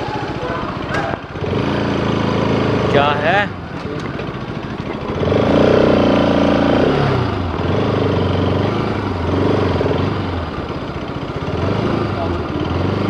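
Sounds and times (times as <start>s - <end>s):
motorcycle engine revving and idling: 0.0s - 13.0s.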